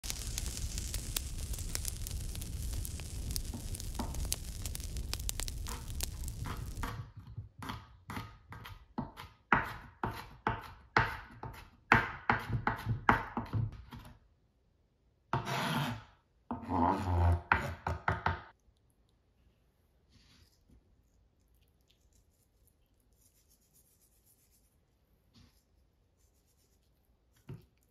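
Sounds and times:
food sizzling: 0.0s - 7.0s
knife chopping on cutting board: 7.6s - 14.0s.

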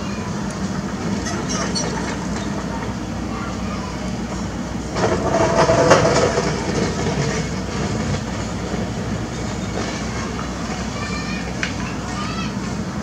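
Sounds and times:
diesel engine running: 0.0s - 13.0s
rattling clatter: 5.0s - 8.2s.

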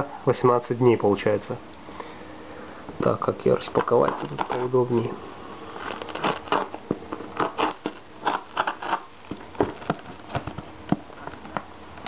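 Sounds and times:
cardboard and tape crackling: 3.4s - 12.0s.

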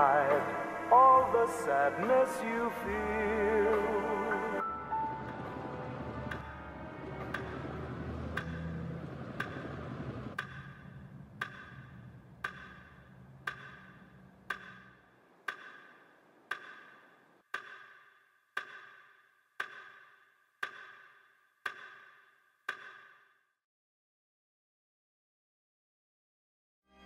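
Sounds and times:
background music: 0.0s - 15.9s
mechanical clock ticking: 7.2s - 23.2s.

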